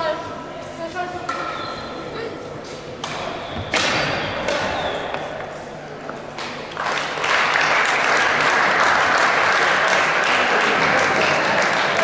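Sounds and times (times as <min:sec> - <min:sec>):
spectators clapping: 0:06.3 - 0:12.0.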